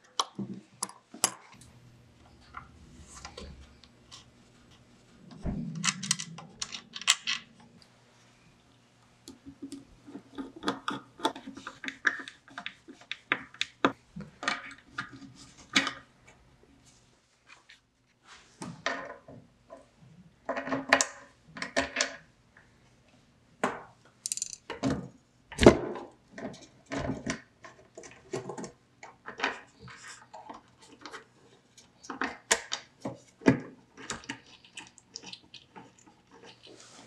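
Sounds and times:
metal parts clicking and clinking: 5.8 - 7.6, 24.2 - 24.8.

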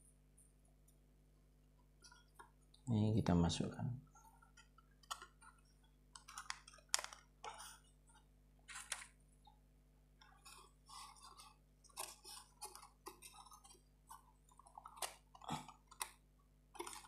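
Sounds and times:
small wooden clicks and taps: 4.5 - 7.6.

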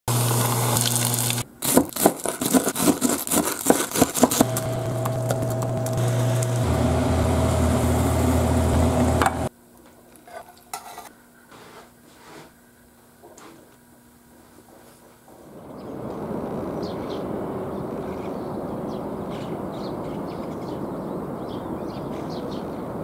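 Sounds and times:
onions sizzling in a pan: 0.1 - 1.4
cutlet deep-frying in hot oil: 0.1 - 3.7.

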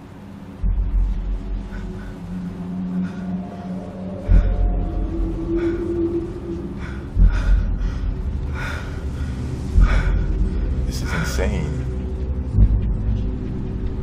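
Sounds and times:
deep low booms: 0.4 - 10.9, 11.8 - 14.0
man breathing in ragged gasps: 1.6 - 10.8.

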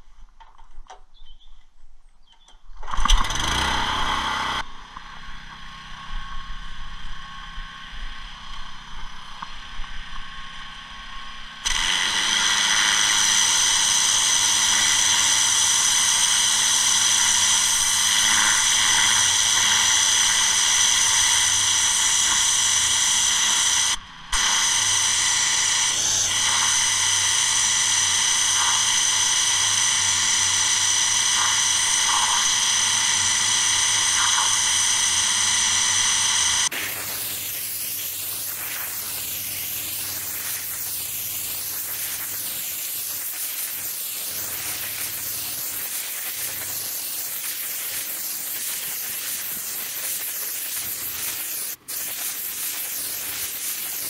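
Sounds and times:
pressure washer engine drone: 3.0 - 9.4, 10.1 - 54.0
water jet hissing: 24.4 - 54.0.

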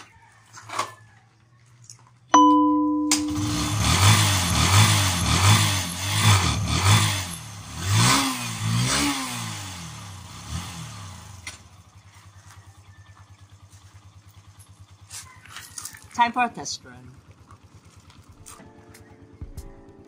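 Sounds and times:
motorcycle engine revving: 3.1 - 20.0
motorcycle engine idling: 9.5 - 20.0.

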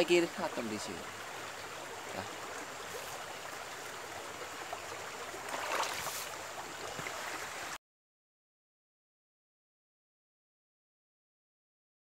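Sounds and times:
mountain stream flowing: 0.0 - 7.8.

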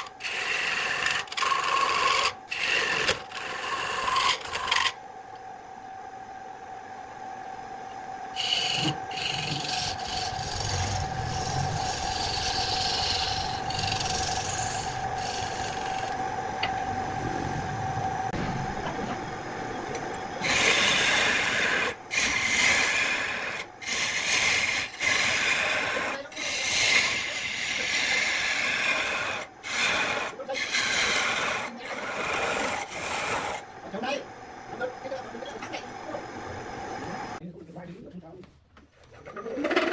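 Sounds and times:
chisel scraping wood on lathe: 0.0 - 5.0, 8.4 - 16.2, 20.4 - 33.7
lathe hum: 0.0 - 37.4.

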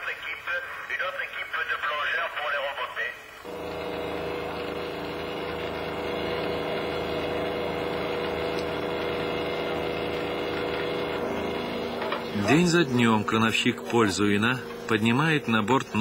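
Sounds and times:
cable winch droning: 3.5 - 16.0.

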